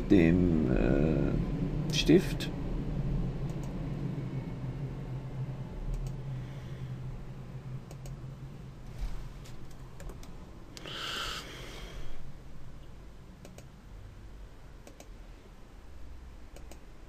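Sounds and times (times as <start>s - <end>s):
low electrical hum: 0.0s - 17.0s
computer mouse clicks: 3.5s - 3.8s, 5.9s - 6.2s, 7.9s - 8.2s, 9.7s - 10.9s, 13.4s - 13.7s, 14.8s - 15.1s, 16.5s - 16.8s.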